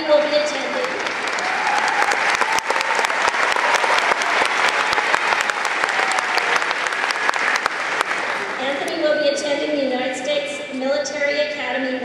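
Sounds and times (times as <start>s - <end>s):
audience clapping: 0.2s - 8.6s.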